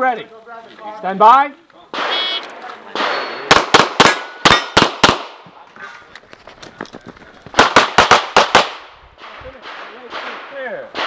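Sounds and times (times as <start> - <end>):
pistol shots with echo: 1.9 - 5.4, 7.6 - 11.0.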